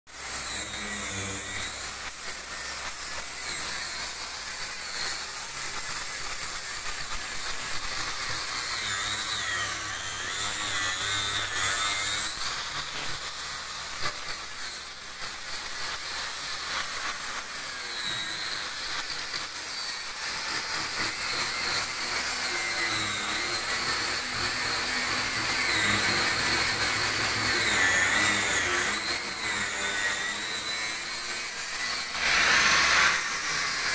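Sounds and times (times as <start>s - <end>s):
welding arc crackling hiss: 0.3s - 32.1s.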